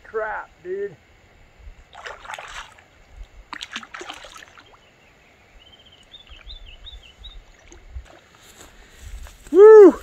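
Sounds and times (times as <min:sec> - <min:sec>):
fish splashing in water: 0:01.9 - 0:04.8
faint high chirps: 0:04.5 - 0:07.8.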